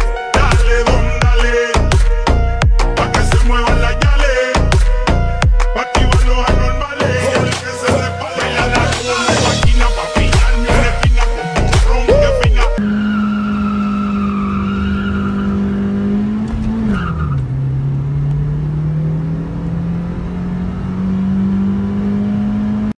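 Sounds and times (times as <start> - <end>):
car engine accelerating: 6.5 - 23.0.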